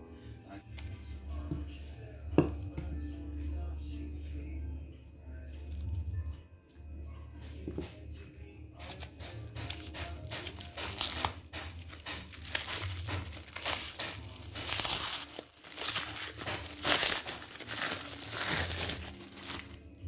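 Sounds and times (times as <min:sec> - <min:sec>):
plastic shrink wrap crinkling: 0:03.9 - 0:06.4, 0:07.6 - 0:20.0.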